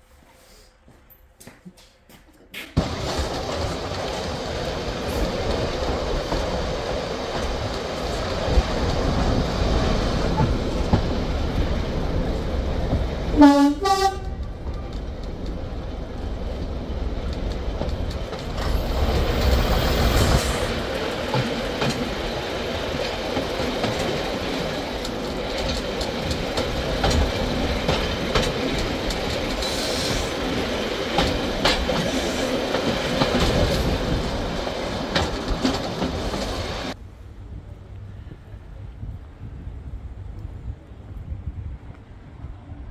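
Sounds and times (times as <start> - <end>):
wheels clicking over rail joints: 2.6 - 37.0
diesel train running noise: 2.8 - 42.9
two-tone train horn: 13.3 - 14.5.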